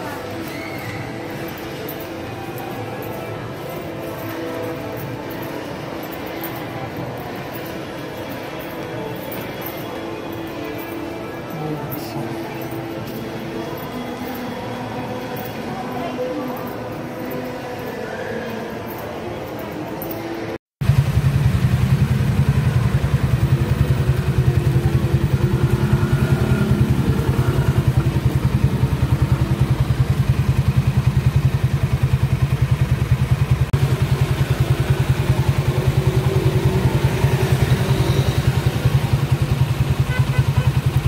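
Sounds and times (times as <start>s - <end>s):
indoor crowd ambience: 0.0s - 20.6s, 21.8s - 41.0s
motorcycle engine pulsing: 20.8s - 41.0s.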